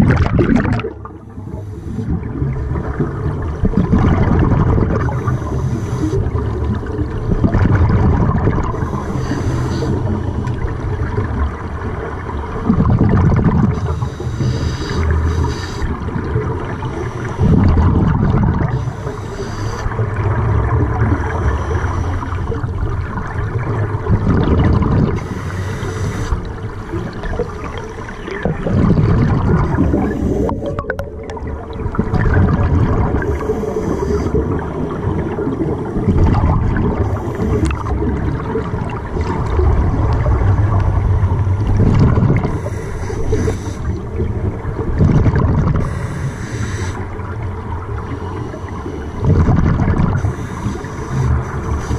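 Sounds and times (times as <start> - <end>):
exhaled bubbles gurgling: 0.0 - 51.9
regulator hissing inhale: 1.3 - 2.1, 5.2 - 6.4, 8.7 - 10.2, 13.8 - 16.1, 16.8 - 17.5, 18.7 - 20.1, 21.1 - 22.6, 25.2 - 26.6, 30.1 - 30.7, 33.2 - 34.6, 37.0 - 38.0, 42.4 - 44.1, 45.8 - 47.2, 50.2 - 51.9.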